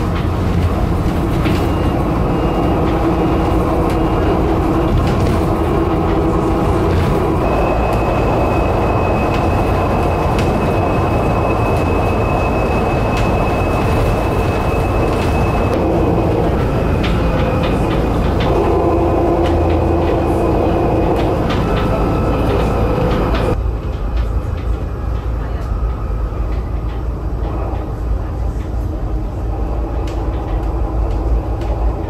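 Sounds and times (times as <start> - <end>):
high whine: 0.0 - 23.6
road and tyre rumble: 0.0 - 32.0.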